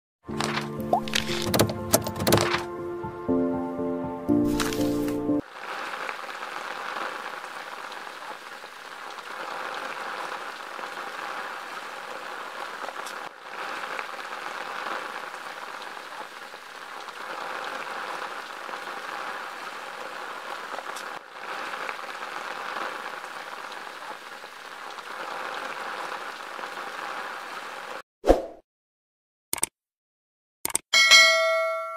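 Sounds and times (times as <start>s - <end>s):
heavy rain: 4.5s - 28.0s.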